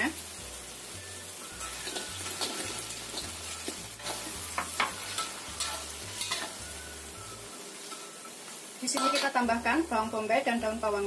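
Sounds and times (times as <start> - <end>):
sauce sizzling in a wok: 0.0 - 11.0
metal spatula scraping wok: 1.5 - 9.4.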